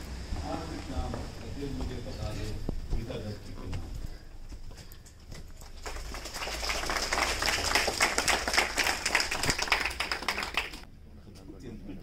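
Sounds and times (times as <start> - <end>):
audience applauding: 5.6 - 10.9.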